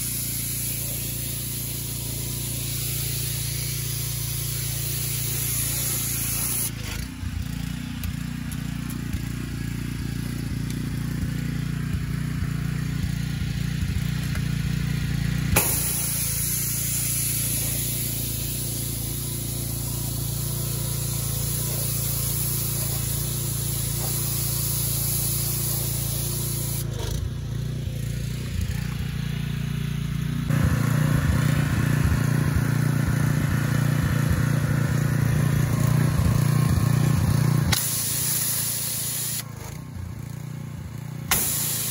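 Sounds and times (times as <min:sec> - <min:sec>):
water hissing from nozzles: 0:00.0 - 0:06.8, 0:15.6 - 0:26.8, 0:37.7 - 0:39.4, 0:41.3 - 0:41.9
pressure washer humming: 0:00.0 - 0:41.9.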